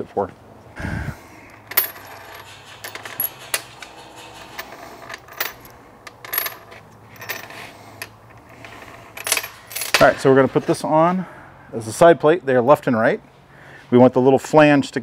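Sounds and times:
metal washers clinking: 0:01.5 - 0:10.7.

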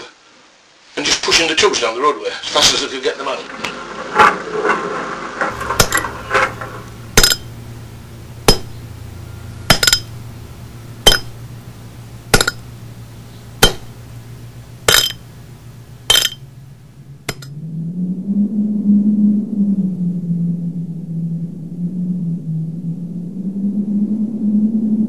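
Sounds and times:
ringing metallic strikes: 0:05.5 - 0:07.8, 0:08.4 - 0:10.4, 0:11.0 - 0:11.4, 0:12.3 - 0:12.8, 0:13.6 - 0:14.1, 0:16.1 - 0:16.5, 0:17.3 - 0:17.5
low droning tone: 0:05.5 - 0:25.0
steady low hum: 0:05.5 - 0:25.0.

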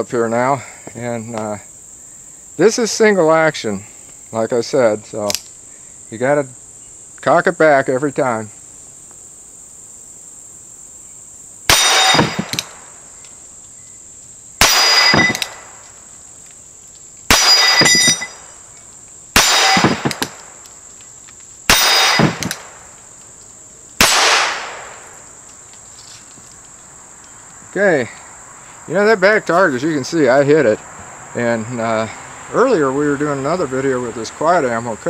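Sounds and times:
crickets buzzing: 0:00.0 - 0:35.0
revolver gunshots: 0:11.7 - 0:13.0, 0:14.6 - 0:15.8, 0:17.3 - 0:18.6, 0:19.3 - 0:20.6, 0:21.7 - 0:22.9, 0:24.0 - 0:25.2.

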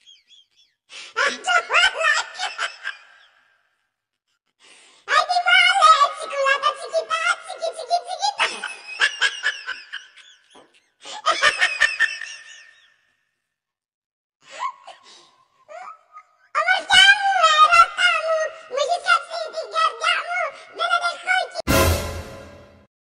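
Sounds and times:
laughter: 0:00.0 - 0:03.6, 0:08.1 - 0:13.2.

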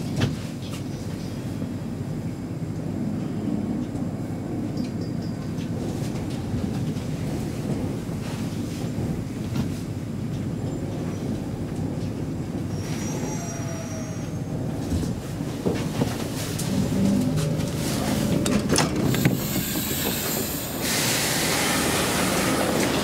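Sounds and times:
train wheels rumbling: 0:00.0 - 0:23.0
high brake squeal: 0:12.7 - 0:14.5.

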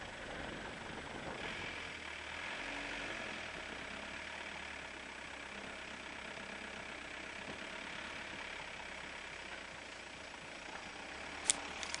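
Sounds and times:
car engine hum: 0:00.0 - 0:12.0.

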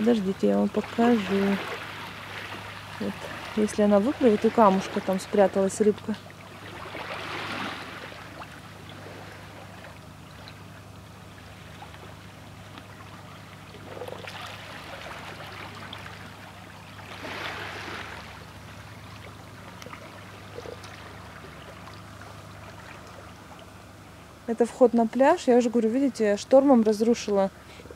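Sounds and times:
small waves lapping: 0:00.0 - 0:25.7
steady low hum: 0:00.0 - 0:27.9.

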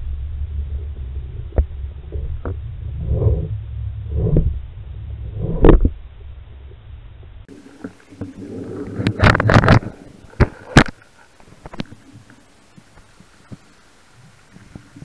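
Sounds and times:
underwater scraping rush: 0:00.0 - 0:12.5
faint ticks: 0:07.7 - 0:15.0.

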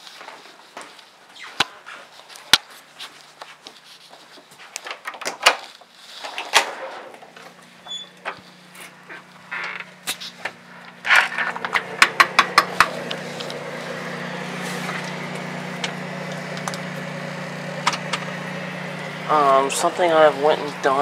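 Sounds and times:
footsteps: 0:00.0 - 0:05.0, 0:07.4 - 0:17.2.

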